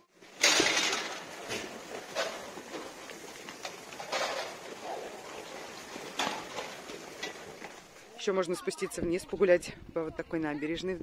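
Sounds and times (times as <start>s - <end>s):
goats chewing hay: 0.2s - 8.2s.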